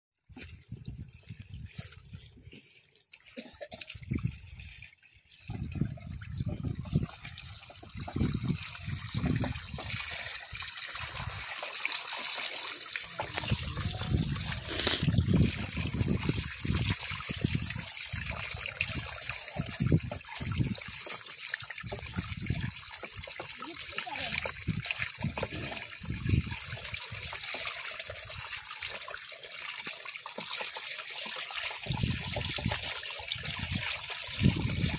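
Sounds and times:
water running and trickling: 0:00.3 - 0:34.9
low splashing and bumping: 0:05.5 - 0:11.6.

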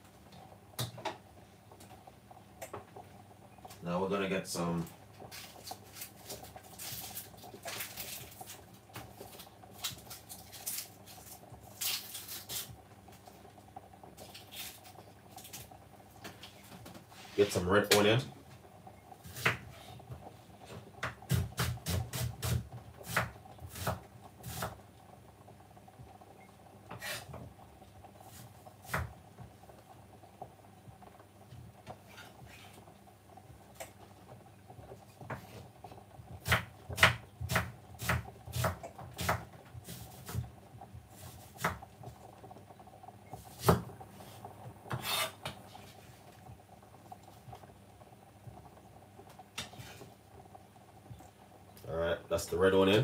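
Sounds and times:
knife slicing onion on wooden board: 0:21.3 - 0:24.7, 0:36.4 - 0:40.4, 0:44.9 - 0:45.4.

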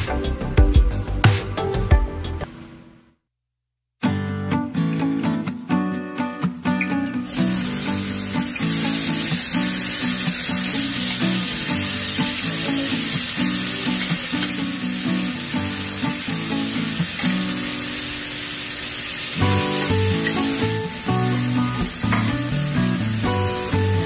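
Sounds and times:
background music: 0:00.0 - 0:02.5, 0:19.3 - 0:24.0
food sizzling: 0:07.2 - 0:24.0.

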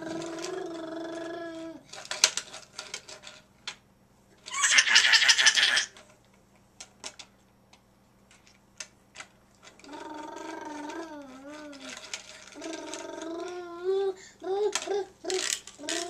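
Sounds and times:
toddler vocalizing: 0:00.0 - 0:01.8, 0:09.8 - 0:16.0
toddler laughing: 0:04.5 - 0:06.0
toy cars tapping on wood: 0:08.3 - 0:13.7, 0:14.6 - 0:16.0.

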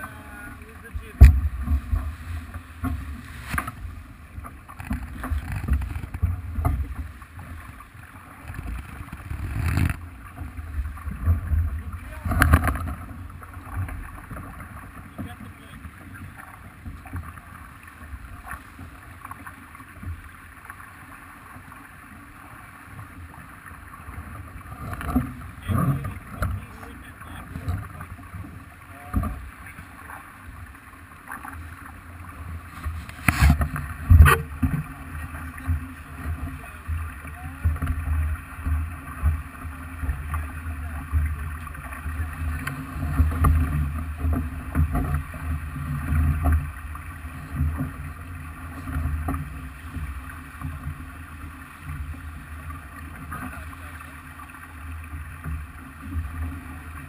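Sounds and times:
water rushing along hull: 0:00.0 - 0:57.0.

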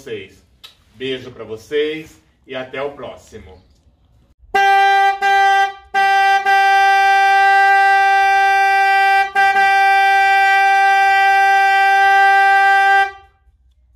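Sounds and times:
car horn honking: 0:04.5 - 0:13.5.

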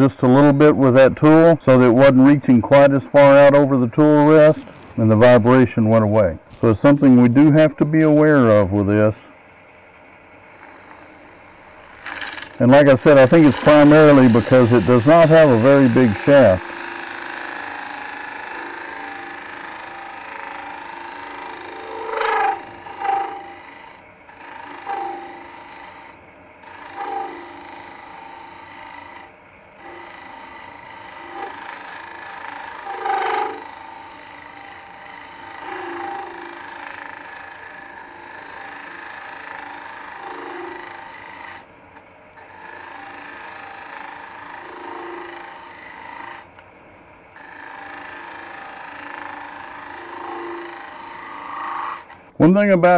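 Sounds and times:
wood lathe humming: 0:00.0 - 0:52.4
tool shaving wood: 0:10.4 - 0:46.6, 0:47.4 - 0:52.3.

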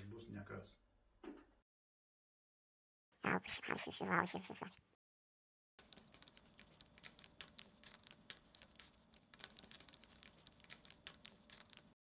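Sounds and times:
faint clicking and scratching: 0:05.8 - 0:12.0.

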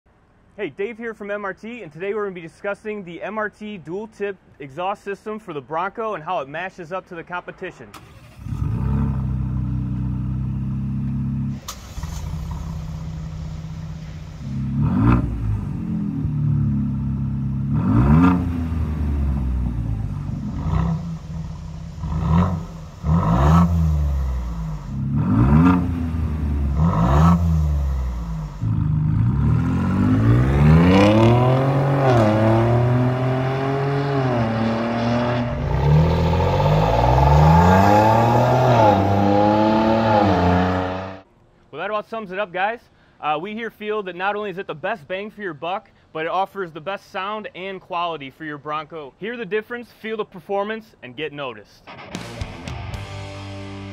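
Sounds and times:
car engine revving fuller tone: 0:07.9 - 0:41.3
car engine revving: 0:08.0 - 0:41.2.

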